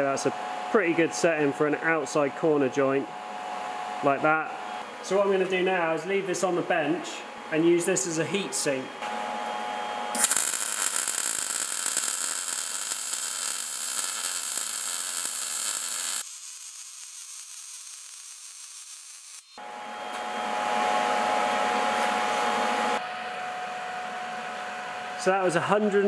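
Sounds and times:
welding arc crackling and hissing: 0:10.2 - 0:19.6.

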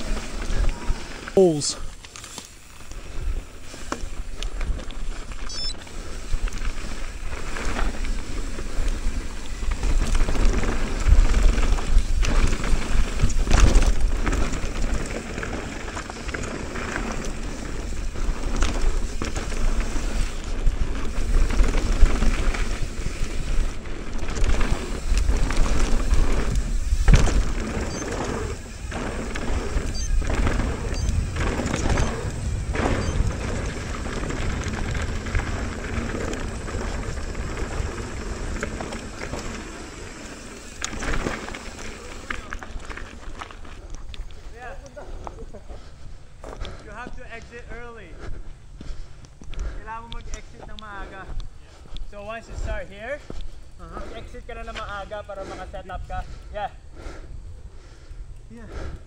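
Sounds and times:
bike rattling: 0:00.0 - 0:59.0
tyres on loose dirt: 0:00.0 - 0:59.0
wind buffeting microphone: 0:08.1 - 0:40.0.

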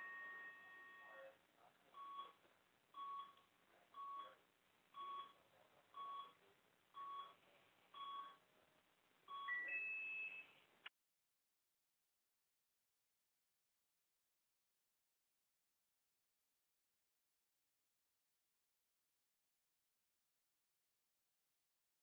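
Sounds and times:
short electronic beeps: 0:09.3 - 0:10.6.

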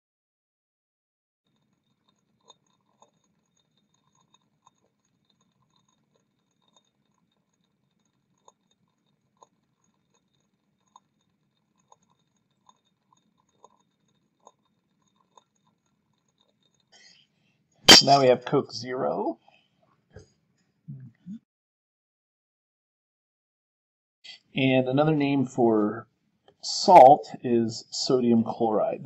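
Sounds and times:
low steady hum: 0:17.9 - 0:19.3, 0:26.6 - 0:29.0.

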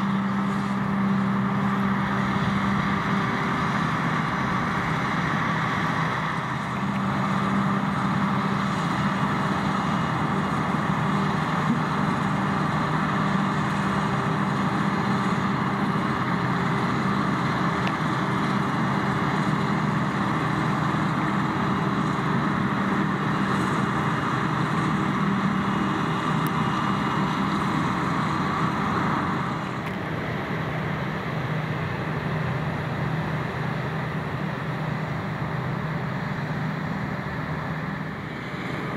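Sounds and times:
forage harvester running: 0:00.0 - 0:38.9
tractor engine running: 0:00.0 - 0:38.9.

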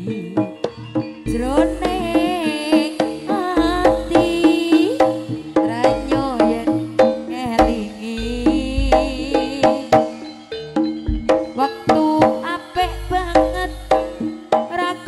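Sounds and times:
hand drums beating: 0:00.0 - 0:15.0
wavering lead melody: 0:00.0 - 0:15.0
deep booming low notes: 0:07.6 - 0:09.5, 0:11.1 - 0:11.5.

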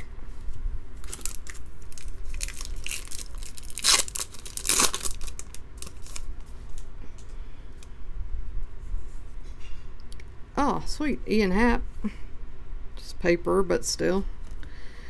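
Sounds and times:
foil pack tearing: 0:01.0 - 0:06.3
foil pack crinkling: 0:01.0 - 0:06.4.

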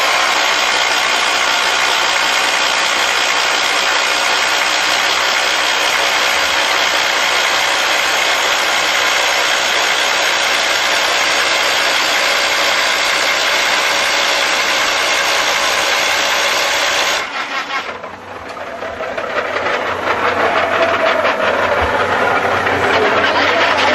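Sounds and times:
rock drill hammering: 0:00.0 - 0:18.1.

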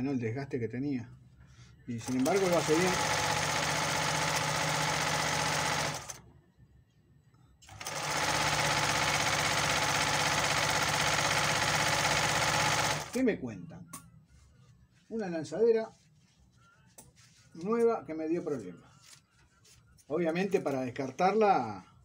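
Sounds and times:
sewing machine stitching: 0:02.0 - 0:06.2, 0:07.6 - 0:13.2.

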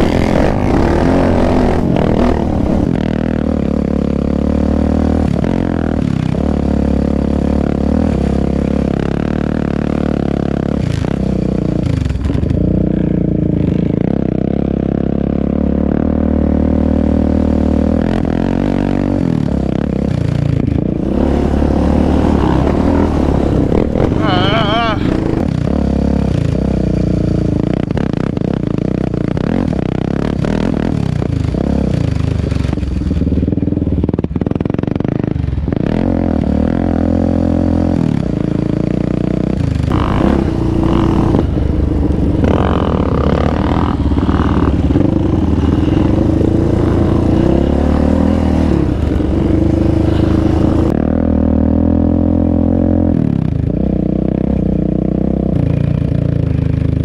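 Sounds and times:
off-road engines revving: 0:00.0 - 0:13.8, 0:20.1 - 0:27.6, 0:35.8 - 0:51.8.

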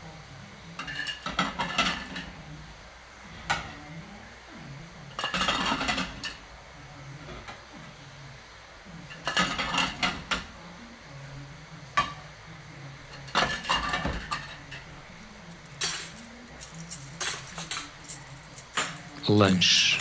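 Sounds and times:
crockery and cutlery clinking: 0:05.2 - 0:06.4, 0:09.1 - 0:10.5, 0:13.1 - 0:20.0.

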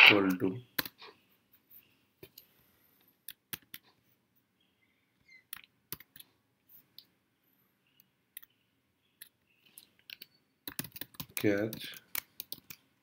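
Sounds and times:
keyboard typing clicks: 0:09.2 - 0:12.8.

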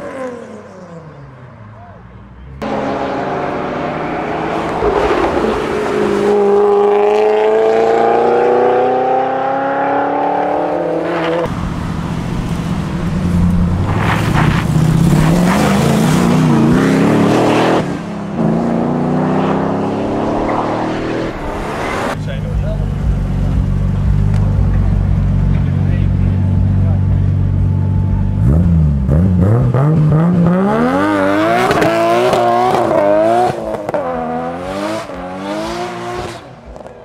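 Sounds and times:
car accelerating away: 0:00.0 - 0:37.0.

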